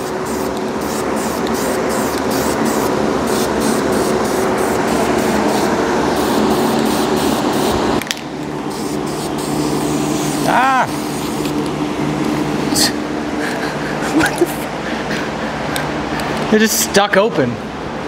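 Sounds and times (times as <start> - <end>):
spray paint hissing: 0.0 - 8.0, 8.7 - 11.7
steady low hum: 0.0 - 18.0.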